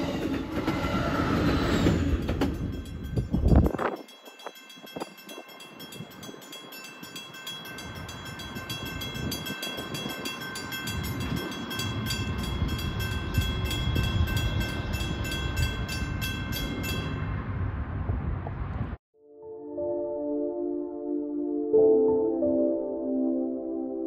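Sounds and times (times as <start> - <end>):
train rumble: 0.0 - 19.0
high ringing tones: 2.1 - 17.4.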